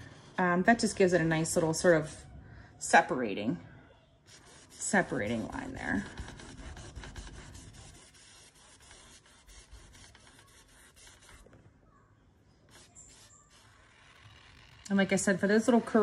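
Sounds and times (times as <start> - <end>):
paintbrush scratching on canvas: 4.2 - 11.6, 12.7 - 16.0.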